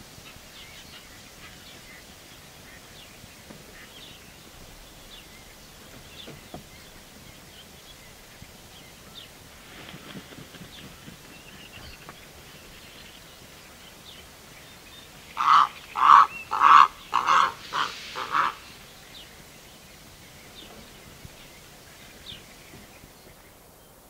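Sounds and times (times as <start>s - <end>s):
background hiss: 0.0s - 24.0s
distant nightingale singing: 0.1s - 24.0s
heron harsh calls: 15.3s - 18.8s.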